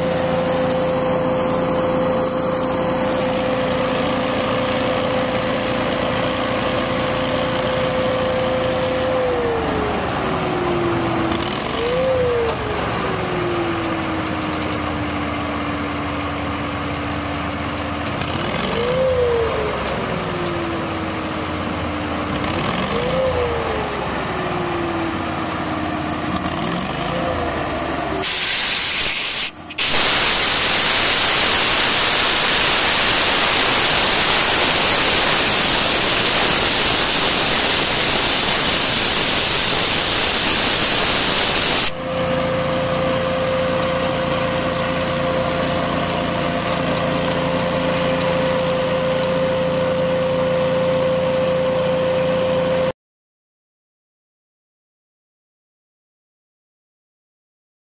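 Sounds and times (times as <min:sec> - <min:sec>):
compressed air hissing: 0:28.2 - 0:42.0
machine humming: 0:29.5 - 0:45.9.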